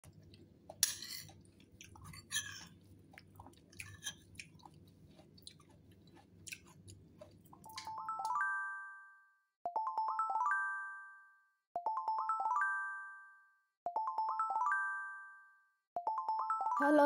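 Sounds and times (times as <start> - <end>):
spoon stirring fruit in bowl: 0.1 - 8.4
chiming jingle: 7.8 - 17.0.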